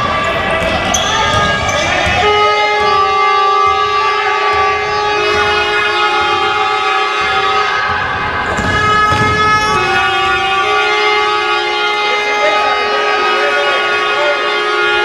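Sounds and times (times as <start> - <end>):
basketball bouncing on wooden court: 0.0 - 11.9
held horn tones: 0.6 - 15.0.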